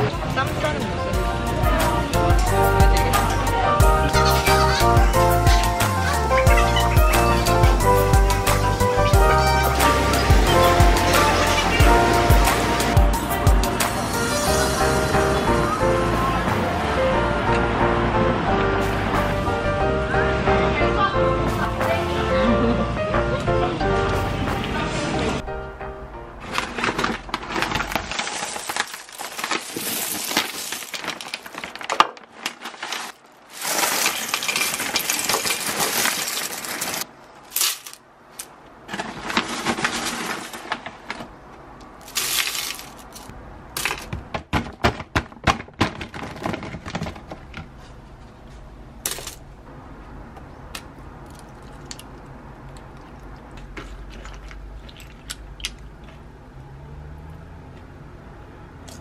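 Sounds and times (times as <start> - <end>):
cornflakes poured into a bowl: 26.8 - 31.9, 32.6 - 37.0, 42.0 - 43.2.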